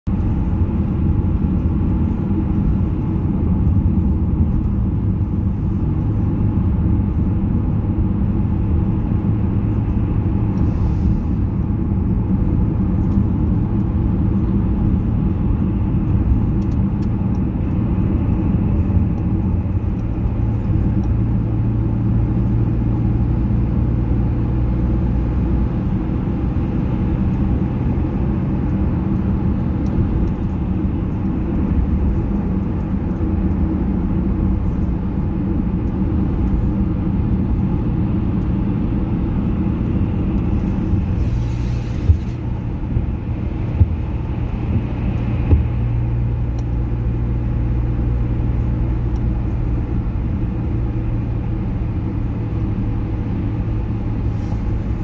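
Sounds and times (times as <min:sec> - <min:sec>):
car road and engine rumble: 0:00.0 - 0:55.0
low hum: 0:00.0 - 0:55.0.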